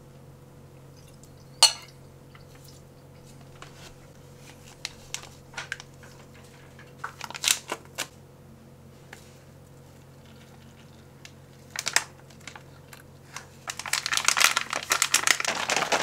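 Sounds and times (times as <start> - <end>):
utensil clinking on ceramic bowl: 1.0 - 2.5.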